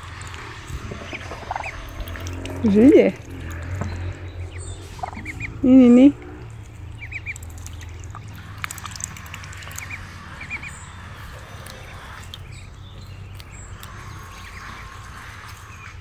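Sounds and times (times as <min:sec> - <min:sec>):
ducks calling: 0:00.0 - 0:16.0
low hum: 0:00.0 - 0:16.0.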